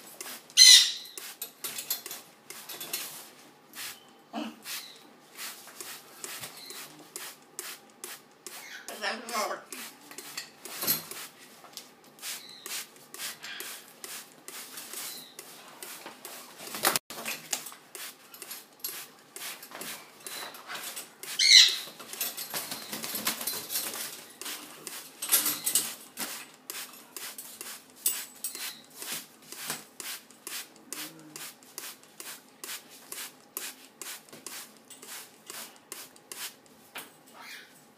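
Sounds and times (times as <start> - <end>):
parrot cry: 0.6 - 1.1, 21.4 - 21.9
wings flapping: 16.6 - 17.0, 21.8 - 24.1.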